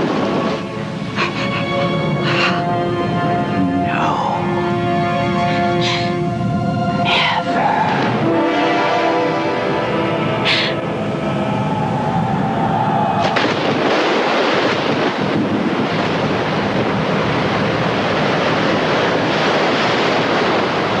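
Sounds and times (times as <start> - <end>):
sustained music tones: 0.0 - 12.9
flood river rushing: 0.0 - 21.0
loud splash: 13.2 - 21.0.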